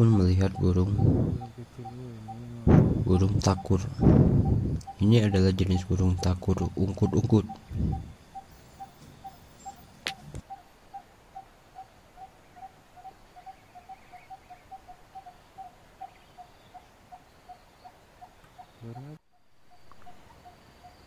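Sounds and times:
barbet calling tuk-tuk-tuk: 0:00.0 - 0:10.3.

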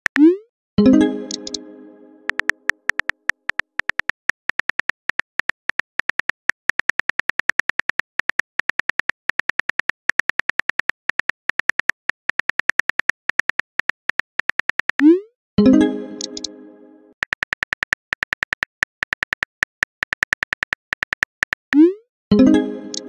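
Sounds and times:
phone keyboard typing clicks: 0:01.2 - 0:01.6, 0:02.3 - 0:15.1, 0:16.2 - 0:16.5, 0:17.2 - 0:21.8.

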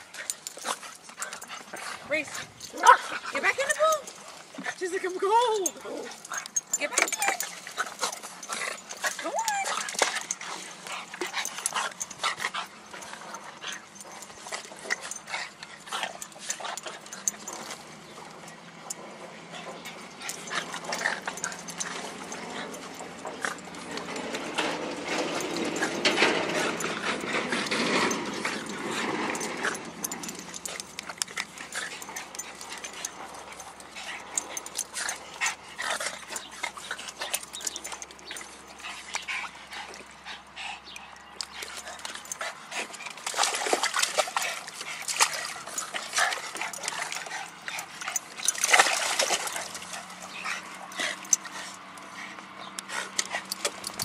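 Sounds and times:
dog vocal sounds: 0:00.0 - 0:18.1
dogs splashing in water: 0:00.0 - 0:54.0.

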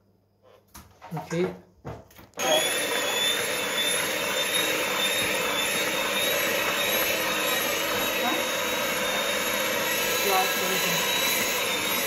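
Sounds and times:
electric hand mixer whining: 0:02.4 - 0:12.0.

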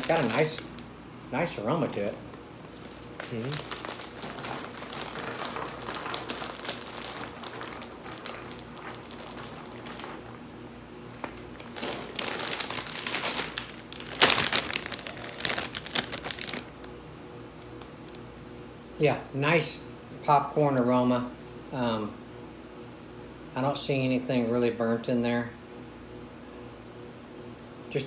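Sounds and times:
popcorn pouring into bowl: 0:00.0 - 0:00.6
plastic bag crinkling: 0:00.0 - 0:00.9, 0:02.7 - 0:17.0.

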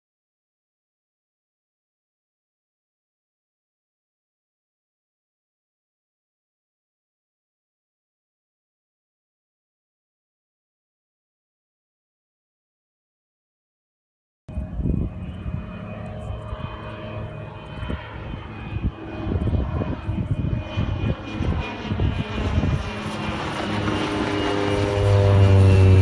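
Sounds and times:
propeller plane flying over: 0:14.5 - 0:26.0.

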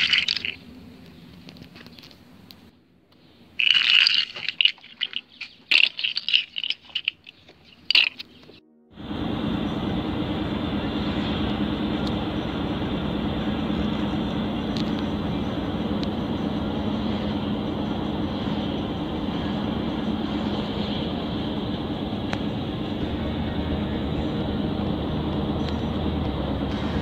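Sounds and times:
car road and engine noise: 0:07.4 - 0:27.0.

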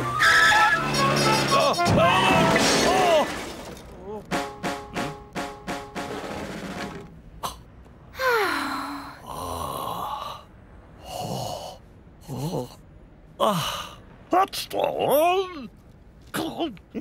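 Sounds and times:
man's wordless vocal sounds: 0:09.2 - 0:14.0.

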